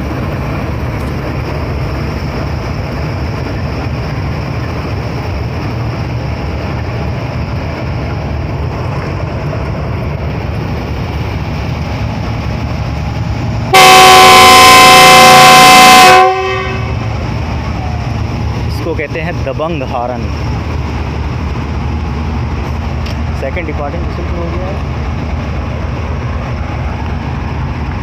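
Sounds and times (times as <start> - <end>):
locomotive idling rumble: 0.0 - 28.0
locomotive horn blast: 13.7 - 17.0.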